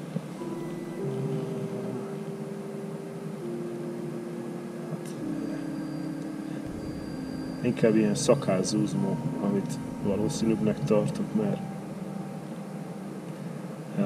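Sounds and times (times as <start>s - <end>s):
low engine drone: 4.9s - 13.8s.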